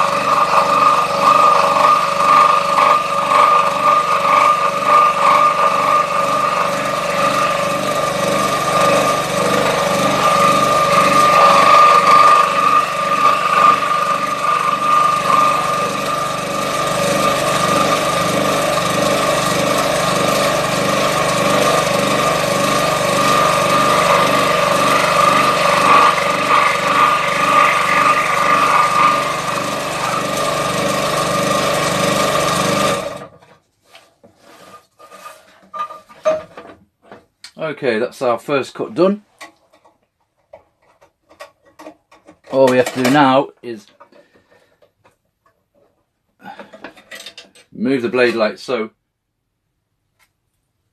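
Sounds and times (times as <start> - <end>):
scroll saw cutting wood: 0.0 - 33.4.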